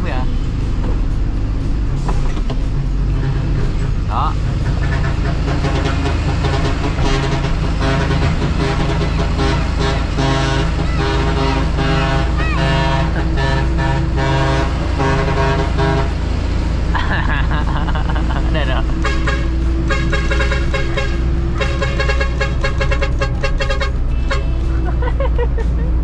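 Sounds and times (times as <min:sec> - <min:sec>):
truck engine drone: 0:00.0 - 0:26.0
musical truck horn playing a tune: 0:04.8 - 0:16.6, 0:18.8 - 0:25.2.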